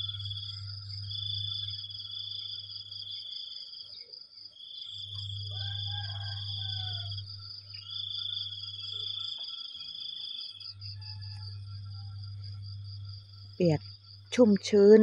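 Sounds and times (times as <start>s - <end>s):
low hum: 0.0s - 2.0s
crickets and cicadas trilling: 0.0s - 15.0s.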